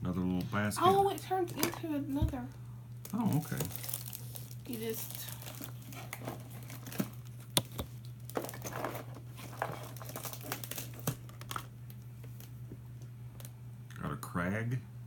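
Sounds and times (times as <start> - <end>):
steady low hum: 0.0 - 15.0
plastic wrapping crinkling: 3.0 - 12.6.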